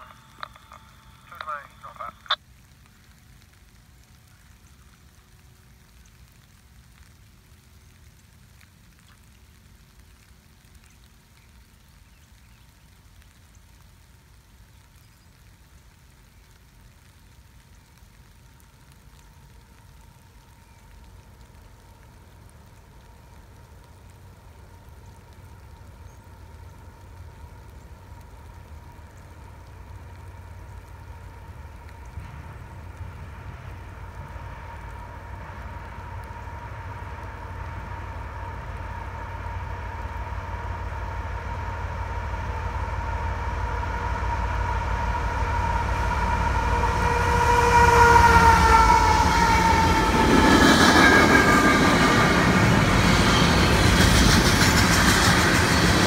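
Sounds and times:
diesel train rumbling: 0.0s - 2.4s, 18.5s - 56.0s
soft hiss: 0.0s - 46.1s
faint steady whine: 0.0s - 47.1s.

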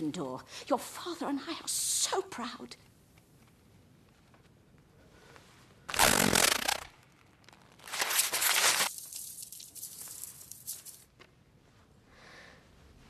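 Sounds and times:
loud burst of sound: 5.9s - 6.9s
paper tearing: 5.9s - 9.3s
paper scraps rustling: 7.8s - 11.0s.

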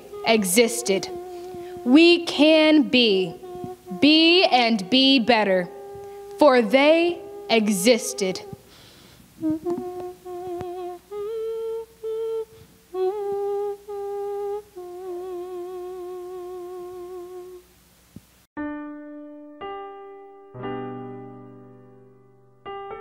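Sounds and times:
woman humming: 0.0s - 8.7s, 9.4s - 17.6s
piano chords: 18.6s - 23.0s.

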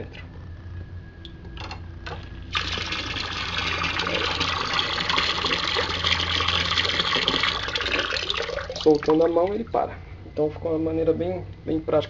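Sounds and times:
low hum: 0.0s - 12.0s
water splashing into a tub: 2.1s - 9.2s.

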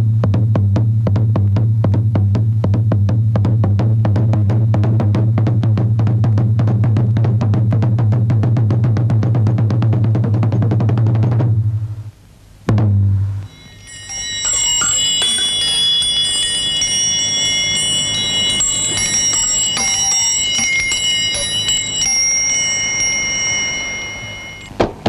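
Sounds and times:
bell chimes ringing: 13.5s - 24.8s.

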